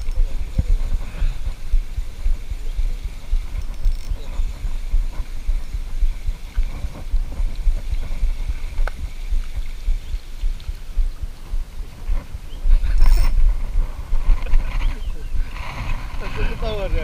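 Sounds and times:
faint clicks: 0.0s - 16.0s
wind buffeting microphone: 0.0s - 17.0s
spinning reel cranking: 3.5s - 4.2s.

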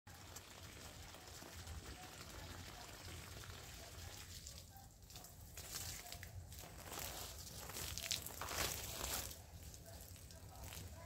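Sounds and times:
leaves and twigs rustling: 5.7s - 9.4s.

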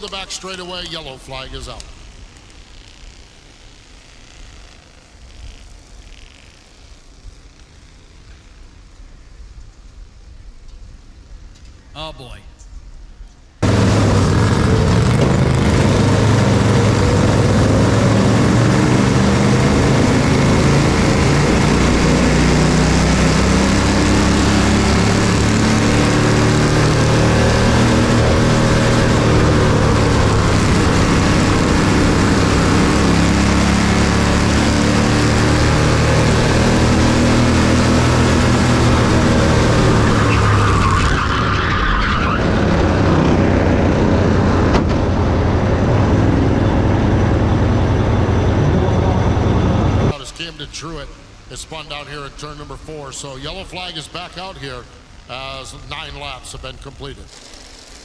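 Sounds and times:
race car engine running hard: 13.6s - 58.0s.

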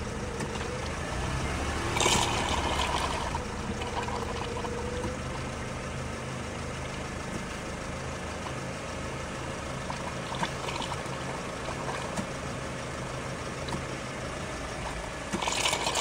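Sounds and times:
car engine idling: 0.0s - 16.0s
fluid pumping through hose: 0.3s - 5.5s, 9.7s - 12.4s, 13.6s - 16.0s.

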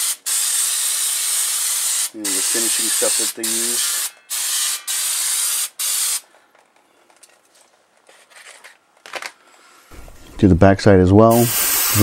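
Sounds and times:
aerosol spray hissing: 0.0s - 6.2s, 11.3s - 12.0s.

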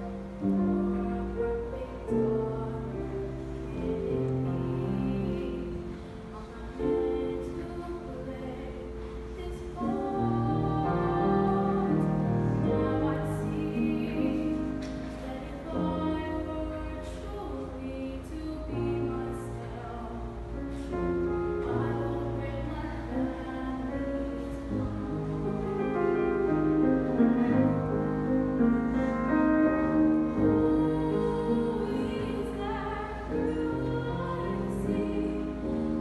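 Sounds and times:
girl singing: 0.4s - 21.0s, 30.0s - 36.0s.

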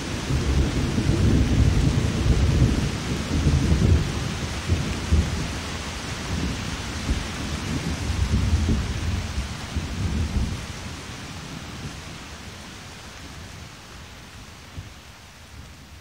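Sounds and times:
rolling thunder: 0.0s - 12.2s
steady rain: 0.0s - 16.0s.

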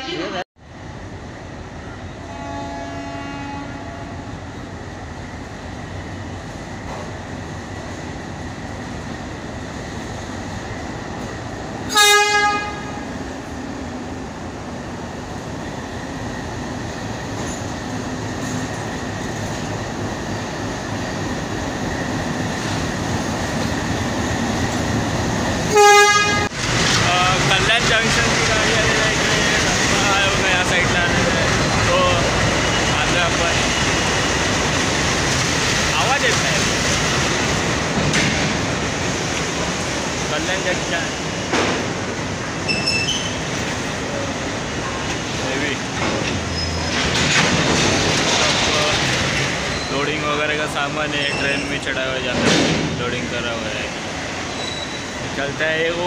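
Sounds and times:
diesel locomotive engine rumbling: 0.0s - 56.0s
train horn blasts: 2.1s - 4.4s, 11.9s - 13.1s, 25.7s - 26.6s.

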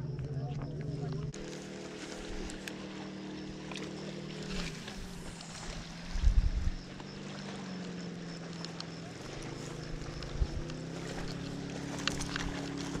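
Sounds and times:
motorboat engine humming: 0.0s - 13.0s
low rumble: 4.4s - 7.0s.

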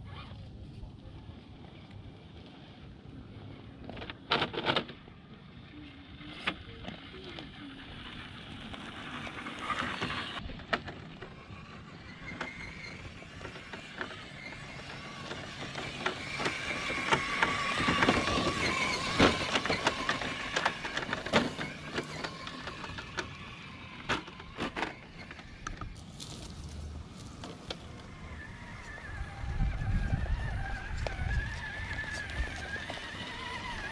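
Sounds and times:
electric motor whining: 6.9s - 33.9s
tyres crackling over rock: 8.5s - 33.9s.

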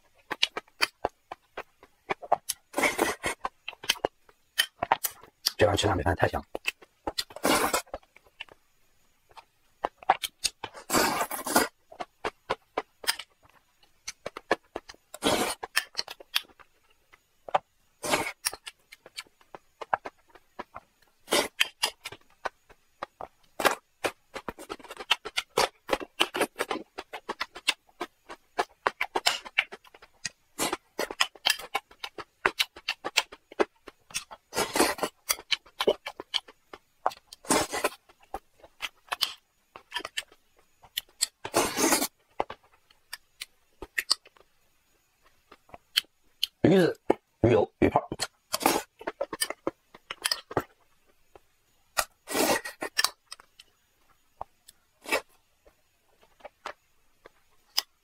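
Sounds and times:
wet chewing: 17.5s - 44.4s.

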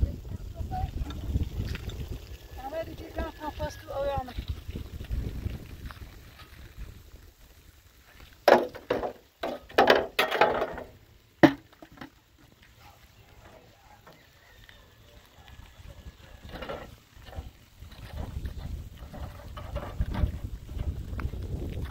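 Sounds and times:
wheelbarrow rattling: 8.4s - 21.9s
tools clanking in wheelbarrow: 8.5s - 12.2s, 16.4s - 21.0s.

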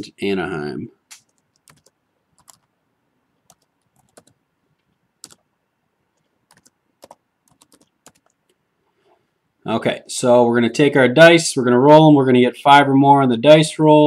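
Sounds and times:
typing on computer keyboard: 1.1s - 2.7s, 3.4s - 4.4s, 5.2s - 5.4s, 6.2s - 8.4s.

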